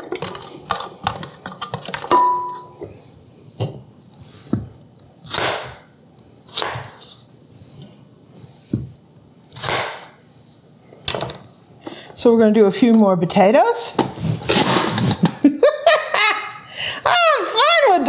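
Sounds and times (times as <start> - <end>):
knife slicing potatoes: 5.2 - 5.8, 6.5 - 7.2, 8.6 - 10.2.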